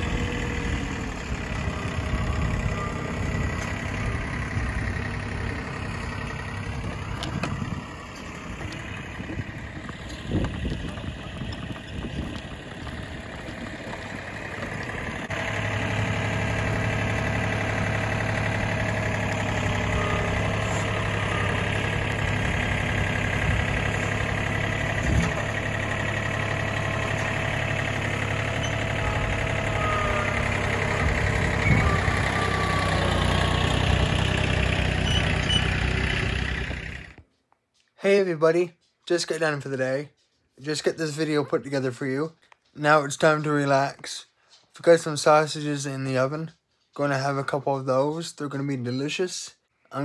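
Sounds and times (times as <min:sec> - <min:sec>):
tractor diesel engine running: 0:00.0 - 0:37.3.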